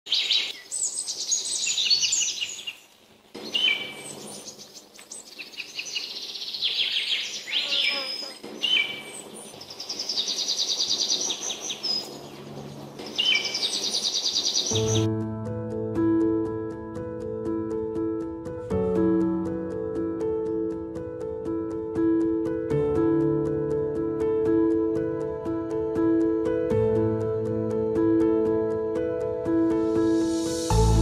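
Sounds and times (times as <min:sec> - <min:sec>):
birds singing: 0:00.1 - 0:15.1.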